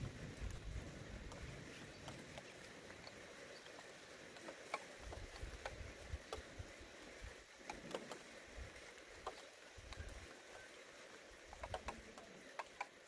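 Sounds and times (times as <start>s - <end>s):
wind rumble on microphone: 0.0s - 2.4s
raindrops ticking: 0.0s - 13.0s.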